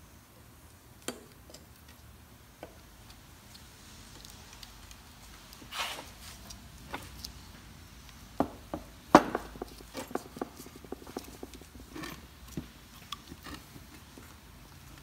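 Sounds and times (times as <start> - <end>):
rustle: 0.0 - 8.3.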